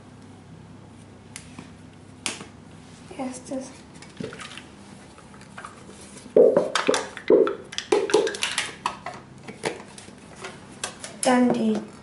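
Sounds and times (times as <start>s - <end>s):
carton and bowl knocks: 6.4s - 8.3s.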